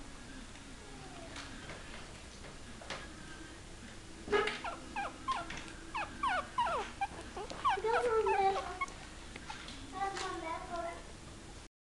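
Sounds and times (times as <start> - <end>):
puppy whimpering: 4.3 - 9.7.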